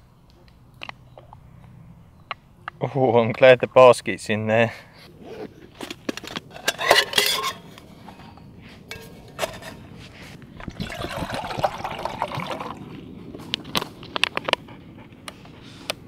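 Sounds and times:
water pouring into metal mug: 0:10.6 - 0:12.9.

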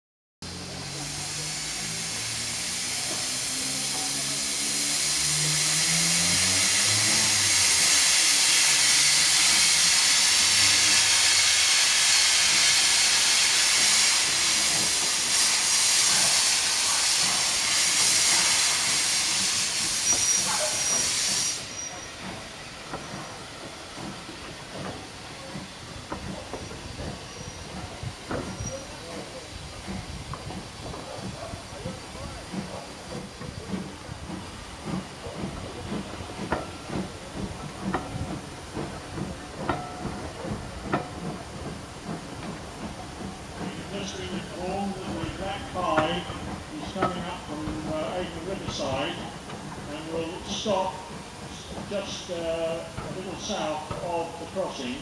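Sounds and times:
loud hiss of steam: 0:00.5 - 0:55.0
coach wheels clicking and knocking: 0:21.8 - 0:55.0.

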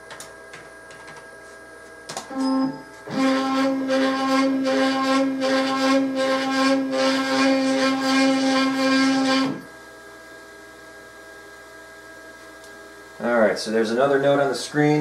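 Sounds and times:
cnc router axes whining: 0:02.3 - 0:09.7.

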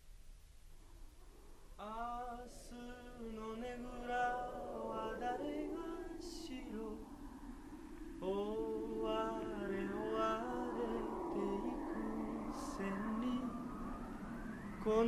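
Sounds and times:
man singing long held notes: 0:01.8 - 0:07.1, 0:08.2 - 0:13.8, 0:14.8 - 0:15.0.

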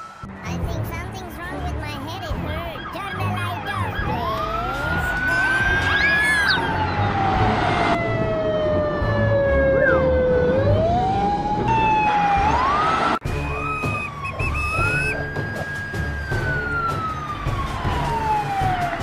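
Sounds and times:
police siren wailing: 0:02.3 - 0:19.0
background music with a beat: 0:13.2 - 0:19.0.

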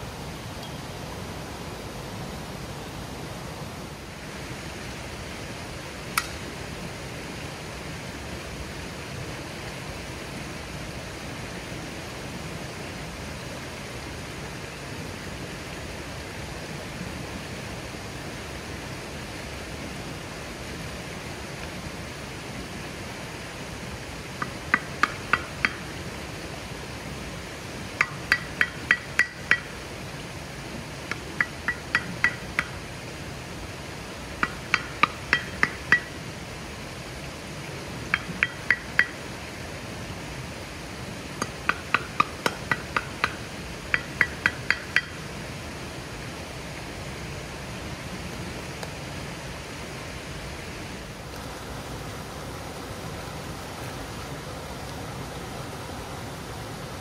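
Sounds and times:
river rushing: 0:00.0 - 0:57.0
frying pan knocking wooden stakes: 0:24.4 - 0:25.8, 0:28.0 - 0:29.8, 0:31.1 - 0:32.8, 0:34.4 - 0:36.1, 0:38.1 - 0:39.2, 0:41.4 - 0:45.2.

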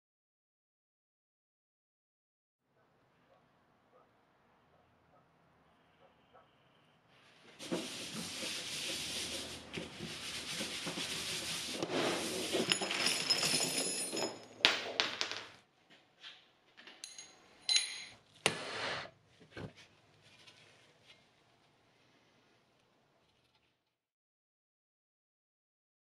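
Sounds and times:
rubbing and rustling: 0:07.2 - 0:13.8, 0:19.3 - 0:21.8
metal parts clattering onto bench: 0:12.4 - 0:15.5, 0:17.0 - 0:18.2.

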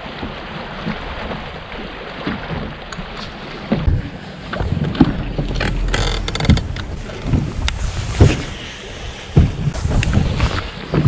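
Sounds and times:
waves slapping boat hull: 0:00.0 - 0:11.0
wind buffeting microphone: 0:03.7 - 0:10.8.

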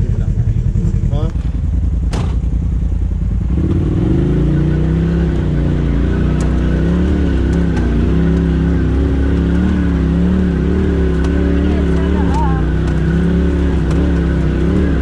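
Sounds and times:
vehicle engine revving: 0:00.0 - 0:15.0.

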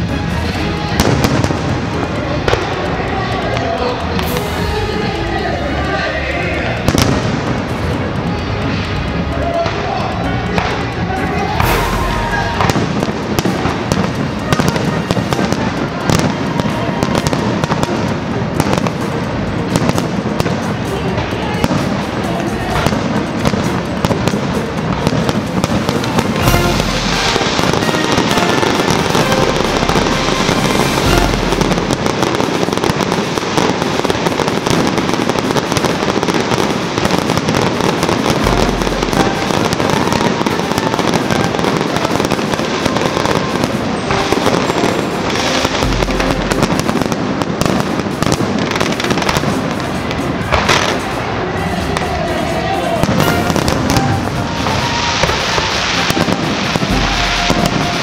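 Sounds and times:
fireworks crackling: 0:00.0 - 0:58.0
deep fireworks booms: 0:11.5 - 0:51.1, 0:53.0 - 0:58.0.

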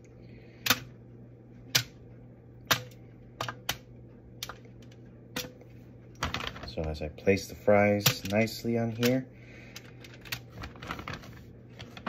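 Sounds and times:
fries clicking on foil pan: 0:07.9 - 0:09.2.

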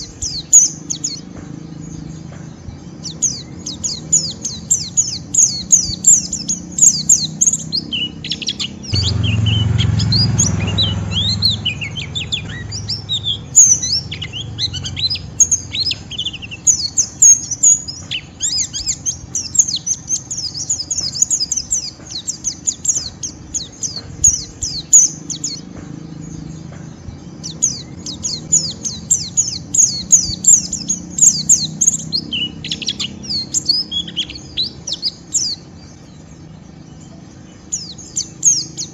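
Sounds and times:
bird twittering high chirps: 0:00.0 - 0:38.9
low hum: 0:08.8 - 0:17.0.

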